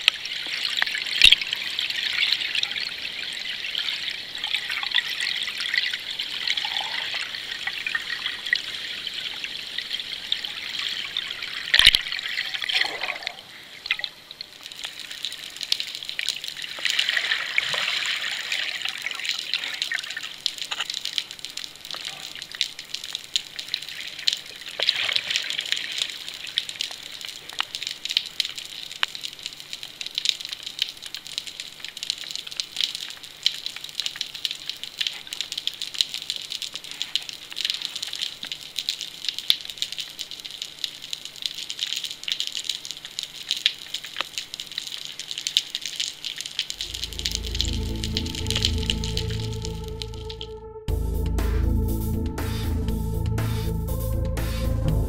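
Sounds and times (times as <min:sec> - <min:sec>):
underwater crackle of clicks: 0:00.0 - 0:01.5, 0:11.7 - 0:12.1, 0:14.0 - 0:16.9, 0:19.6 - 0:50.5
faint low hum: 0:46.5 - 0:51.8
music: 0:46.9 - 0:55.0.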